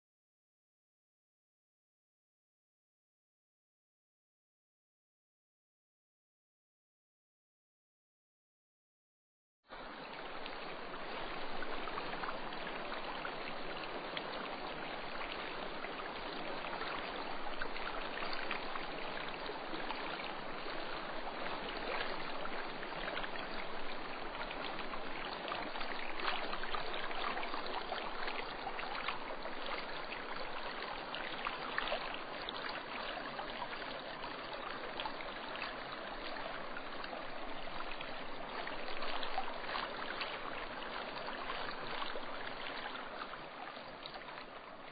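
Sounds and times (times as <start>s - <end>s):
fast-flowing stream rushing: 9.8s - 44.9s.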